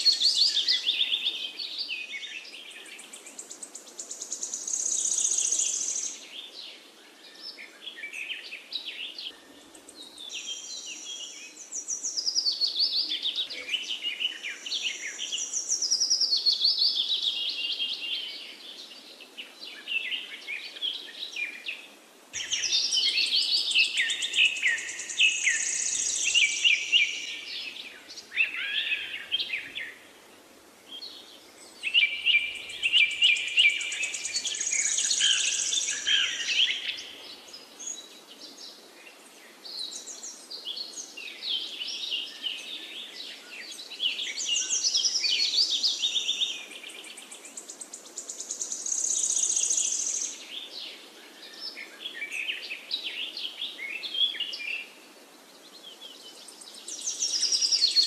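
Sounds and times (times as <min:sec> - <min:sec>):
birds singing and chirping: 0:00.0 - 0:30.1, 0:30.9 - 0:58.0.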